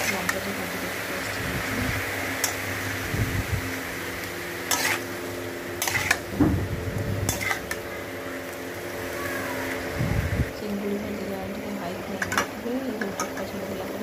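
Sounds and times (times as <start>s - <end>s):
shrimp sizzling in oil: 0.0s - 14.0s
metal spatula scraping pan: 4.6s - 5.1s, 5.8s - 6.3s, 7.2s - 7.8s.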